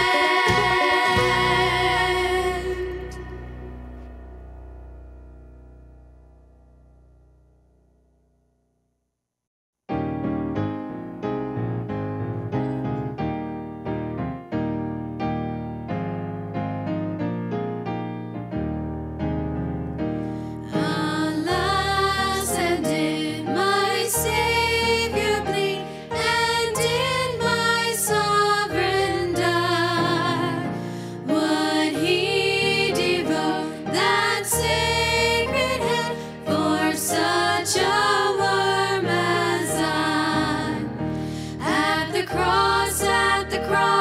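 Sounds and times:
women's group singing gospel: 0.0 - 3.5, 20.8 - 41.0, 41.6 - 44.0
musical accompaniment: 0.0 - 5.8, 9.9 - 44.0.

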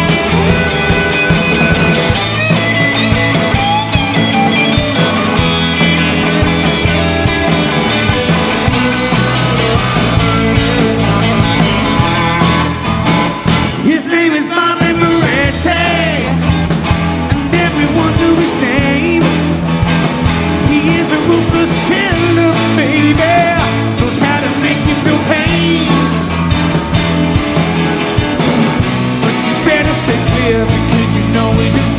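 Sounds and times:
lead guitar bending pitch: 0.0 - 31.6
blues-rock band playing: 0.0 - 31.9.

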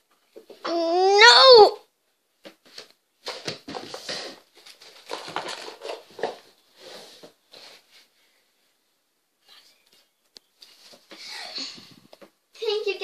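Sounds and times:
rustling and crinkling handling: 2.1 - 8.4, 9.8 - 12.4.

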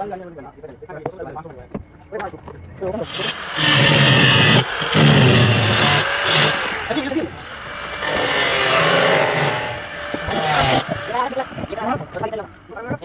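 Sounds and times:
electric drill on sheet metal: 3.0 - 12.8.

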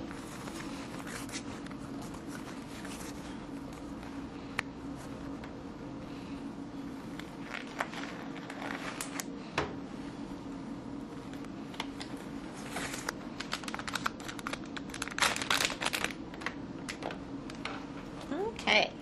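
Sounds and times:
gloves snapping and crinkling: 7.1 - 9.4, 11.3 - 17.7.

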